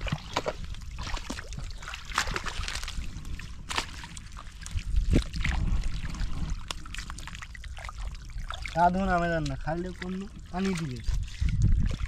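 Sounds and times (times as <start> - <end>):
hands sloshing through muddy water: 0.0 - 12.0.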